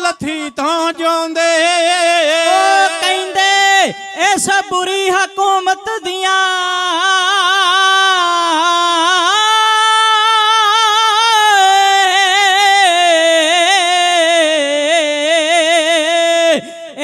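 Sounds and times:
person singing long high note: 0:02.2 - 0:04.8.

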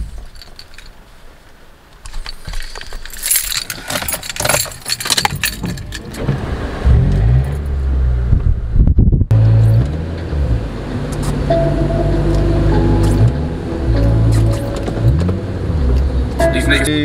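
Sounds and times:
car keys jangling and clicking: 0:00.1 - 0:01.0, 0:02.1 - 0:06.2, 0:14.1 - 0:15.2
car engine low sound: 0:04.3 - 0:17.0.

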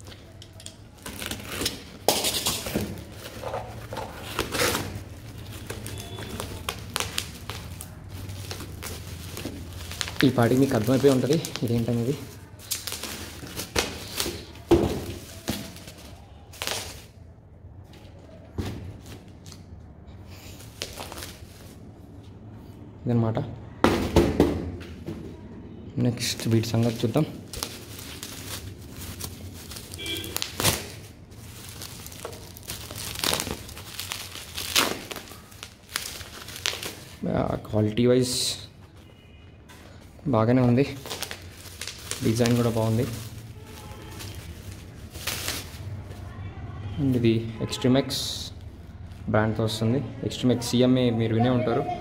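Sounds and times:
bubble wrap and cardboard rustling: 0:00.0 - 0:17.2, 0:20.4 - 0:21.9, 0:26.2 - 0:39.1, 0:40.0 - 0:46.4.

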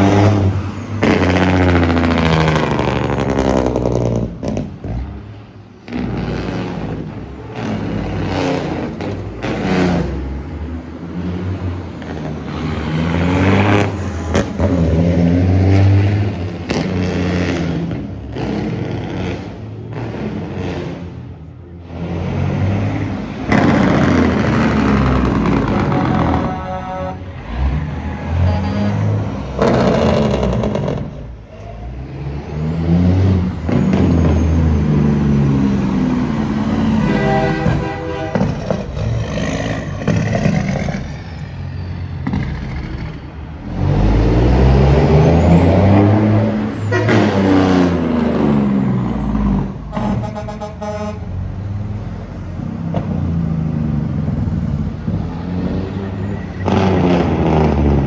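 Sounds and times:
truck engines revving: 0:00.0 - 0:58.0
truck air horn blasts: 0:25.8 - 0:27.3, 0:28.4 - 0:29.2, 0:36.9 - 0:38.8, 0:46.9 - 0:47.4, 0:49.9 - 0:51.4.

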